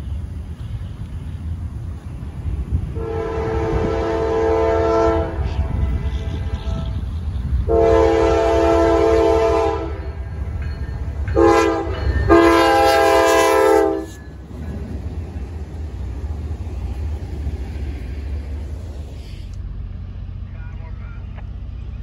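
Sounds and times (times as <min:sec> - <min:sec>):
train rumbling past: 0:00.0 - 0:22.0
locomotive air horn blasts: 0:02.9 - 0:10.1, 0:11.4 - 0:14.2
train wheel clatter: 0:09.2 - 0:19.6.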